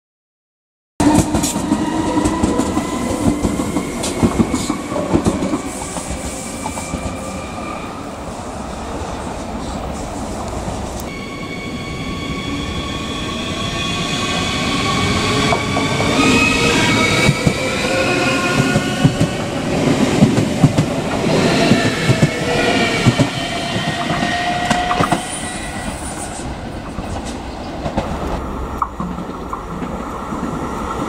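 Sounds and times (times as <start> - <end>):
rail joint clicks: 1.0 - 7.3, 20.2 - 31.0.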